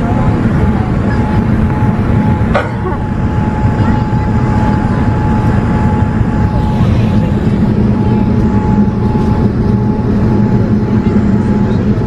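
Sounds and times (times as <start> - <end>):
airplane cabin engine rumble: 0.0 - 12.0
thin high hum: 0.0 - 12.0.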